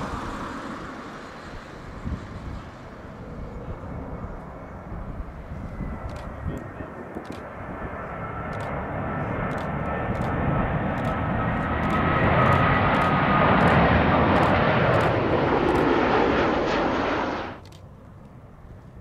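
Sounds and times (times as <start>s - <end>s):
jet airliner passing: 0.0s - 19.0s.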